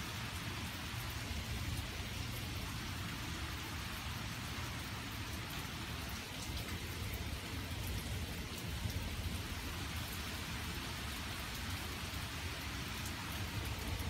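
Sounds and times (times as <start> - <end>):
rain falling: 0.0 - 14.0.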